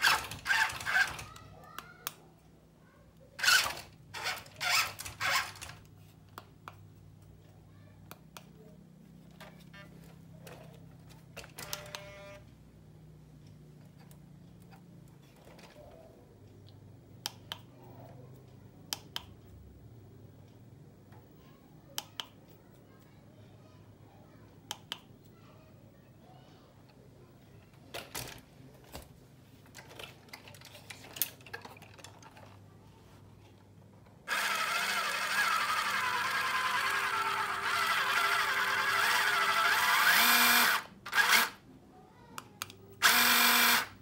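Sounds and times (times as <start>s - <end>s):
knocks and rustles of handling: 13.8s - 16.2s, 26.9s - 34.2s.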